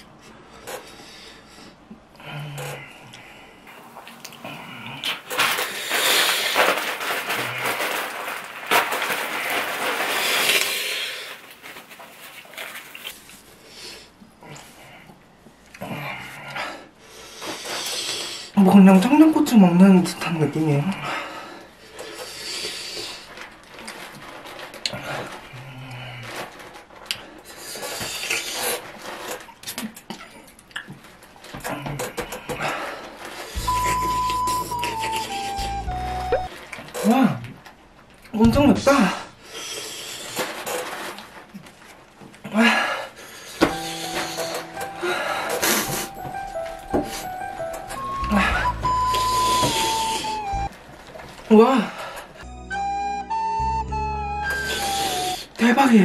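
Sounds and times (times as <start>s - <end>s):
person breathing hard and hissing: 0.3s - 3.8s, 4.4s - 6.8s, 10.1s - 11.4s, 15.9s - 18.6s, 21.0s - 23.3s, 39.2s - 40.6s, 48.4s - 50.7s, 54.6s - 55.6s
man hissing breaths: 42.7s - 47.4s, 48.4s - 50.7s, 54.6s - 55.6s.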